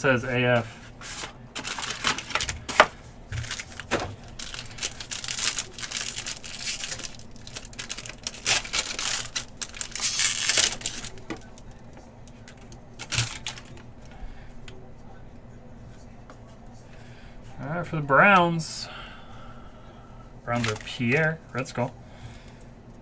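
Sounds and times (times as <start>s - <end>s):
foil wrapper tearing and crinkling: 1.6s - 11.8s, 12.4s - 13.8s, 20.6s - 21.3s.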